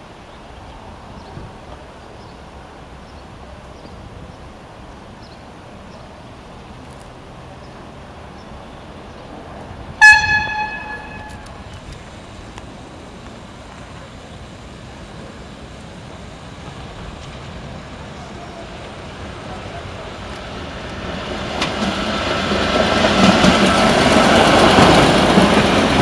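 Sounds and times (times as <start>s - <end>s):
train running: 0.0s - 26.0s
train horn toot: 10.0s - 11.7s.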